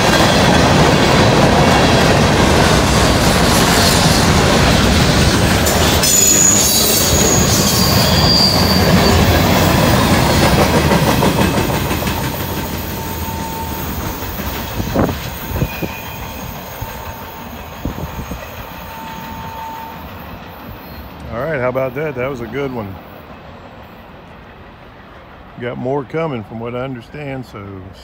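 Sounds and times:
train wheels clattering: 0.0 - 21.8
faint wheel squeal: 6.0 - 9.4, 15.4 - 21.2.

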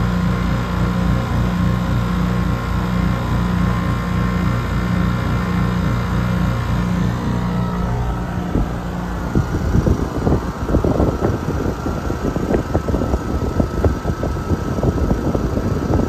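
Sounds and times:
air conditioner unit running: 0.0 - 16.0
faint steady whine: 0.0 - 16.0
air buffeting microphone: 6.2 - 16.0.

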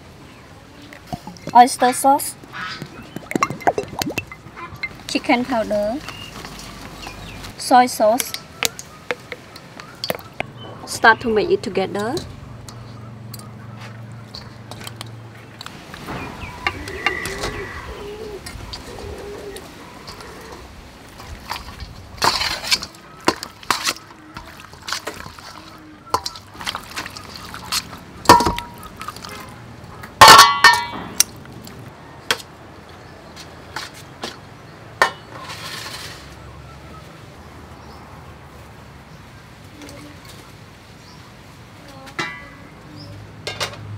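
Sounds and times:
food tossed in wet sauce: 21.2 - 29.5
tongs clinking on steel bowl: 25.2 - 28.8.

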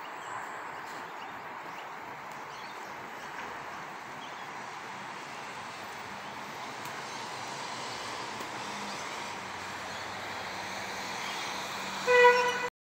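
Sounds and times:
outdoor background hiss: 0.0 - 12.7
horn toot: 12.0 - 12.7.

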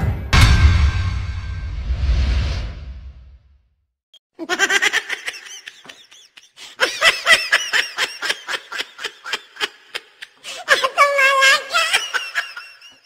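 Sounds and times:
person laughing hard: 4.4 - 13.0.

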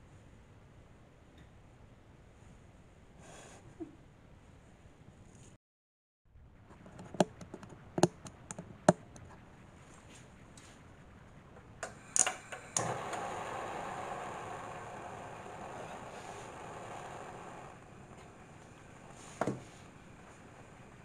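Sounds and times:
gas burner hissing: 7.8 - 21.0.

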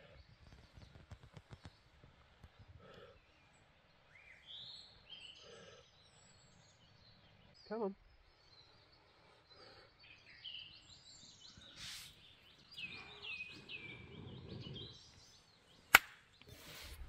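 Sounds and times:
birds chirping: 0.0 - 17.0
breathy puffs blowing tinder: 11.7 - 12.3.

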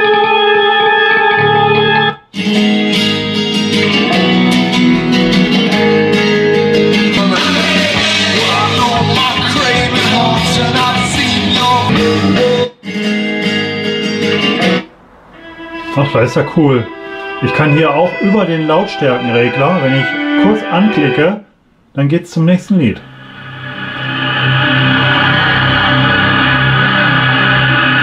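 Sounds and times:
rock music with vocals: 1.4 - 14.8.

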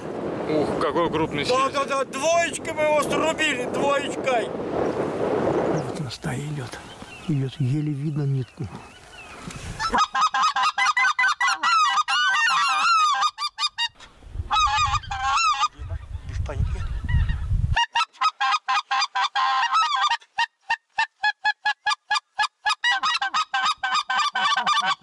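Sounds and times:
wind rumbling on microphone: 0.0 - 10.0, 14.0 - 17.8
goose call honks: 9.8 - 15.8, 17.8 - 25.0.

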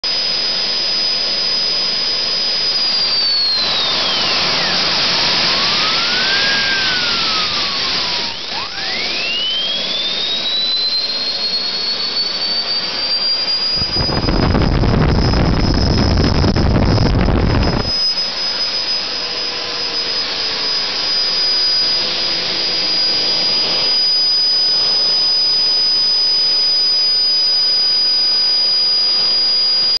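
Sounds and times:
turbojet engine whine: 0.0 - 30.0
engine rushing noise: 3.5 - 24.4.

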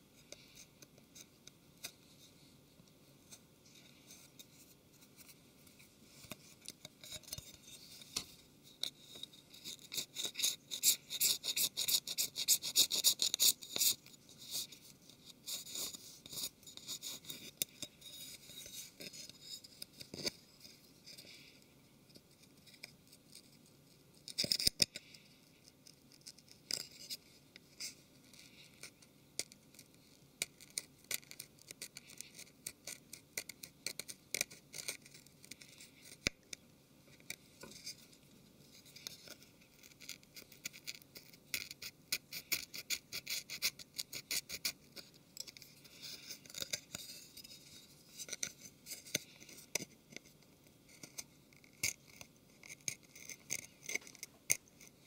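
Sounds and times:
tool scraping adhesive: 8.8 - 14.8, 24.2 - 25.1, 27.8 - 36.5, 38.8 - 55.0.

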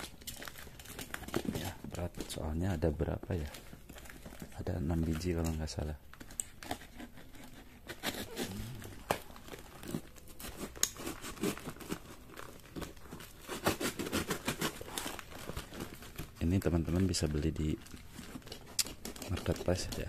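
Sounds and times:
tape and cardboard tearing: 6.2 - 17.1, 17.8 - 20.0
box cutter slicing packing tape: 7.9 - 9.2, 13.4 - 15.2.

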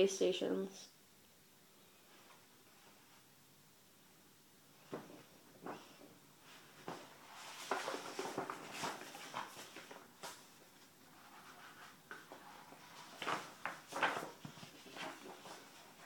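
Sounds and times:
paper maps rustling: 4.8 - 16.0.

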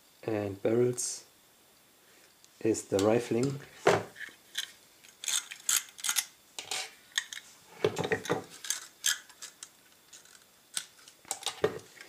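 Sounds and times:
metal pistol parts clicking: 4.5 - 6.3, 8.6 - 11.5.

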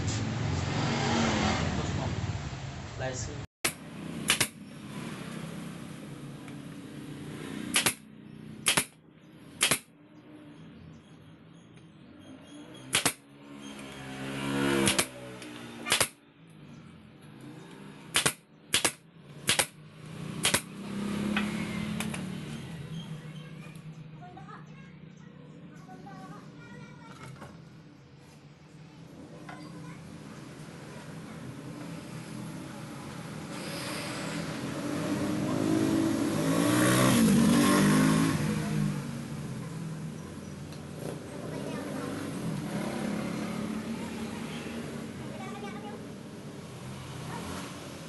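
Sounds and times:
vehicle engine passing by: 0.0 - 8.6, 12.0 - 26.5, 27.6 - 48.0
nail gun firing into wood: 4.2 - 4.6, 7.7 - 8.0, 8.6 - 9.0, 9.6 - 9.9, 12.9 - 13.2, 14.8 - 15.2, 15.8 - 16.2, 18.1 - 19.8, 20.4 - 20.7.

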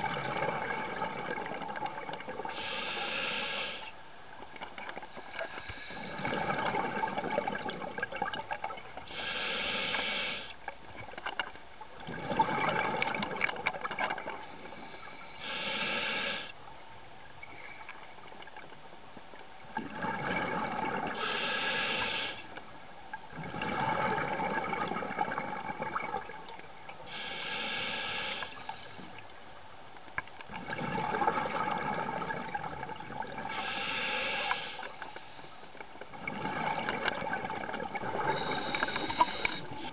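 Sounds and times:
regulator inhale hiss: 2.5 - 4.0, 5.1 - 6.4, 9.1 - 10.6, 14.4 - 16.6, 21.2 - 22.6, 27.1 - 29.2, 33.5 - 35.8, 38.2 - 39.9
exhaled bubbles rushing: 6.1 - 8.8, 12.0 - 14.4, 19.8 - 21.1, 23.3 - 26.4, 30.5 - 33.5, 36.1 - 39.8.

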